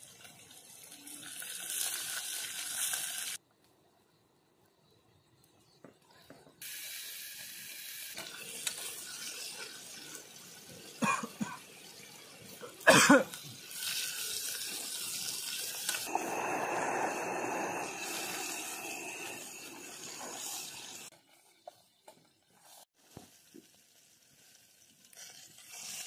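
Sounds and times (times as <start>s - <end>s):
gas stove hissing: 0.0s - 3.4s, 6.6s - 21.1s
person coughing: 11.0s - 11.6s, 12.8s - 13.3s.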